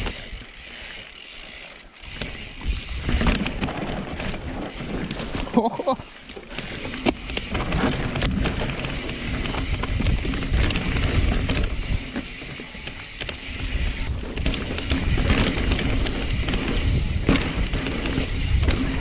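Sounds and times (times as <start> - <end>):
bike tyres rolling on dirt: 0.0 - 19.0.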